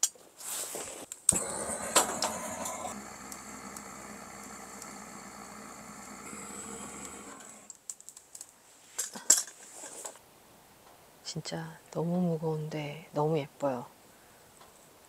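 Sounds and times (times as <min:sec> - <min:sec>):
wood fire crackling: 0:01.0 - 0:08.5.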